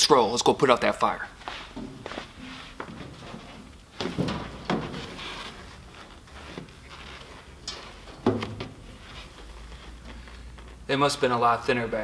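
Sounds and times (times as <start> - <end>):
shoes on metal step plate: 1.7 - 5.6.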